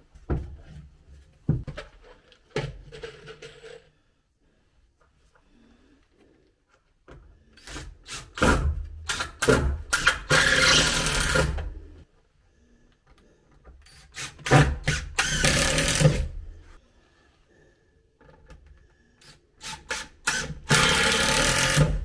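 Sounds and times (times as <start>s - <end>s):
impact driver driving screws into wood: 7.6s - 11.7s, 13.9s - 16.3s, 19.6s - 22.0s.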